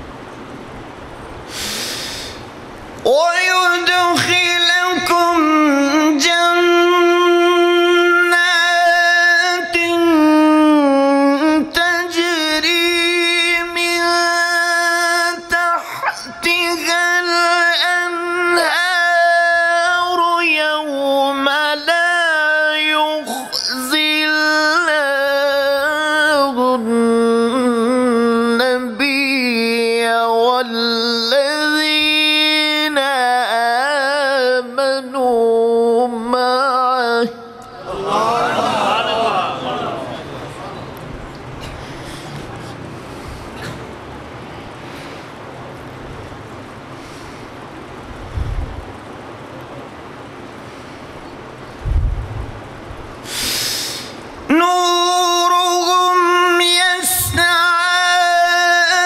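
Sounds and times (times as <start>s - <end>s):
man reciting melodically: 3.0s - 40.8s, 54.4s - 59.0s.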